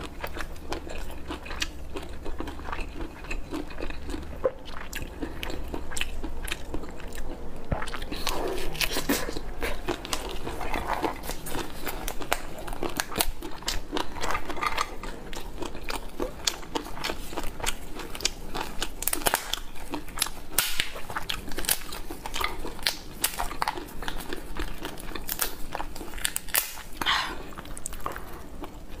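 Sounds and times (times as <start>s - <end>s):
biting and chewing: 0.0s - 29.0s
lobster shell cracking: 20.5s - 23.7s, 25.2s - 27.0s.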